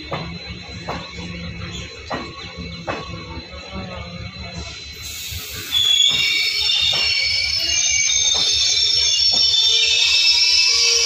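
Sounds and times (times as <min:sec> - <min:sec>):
train wheels squealing: 0:00.0 - 0:11.0.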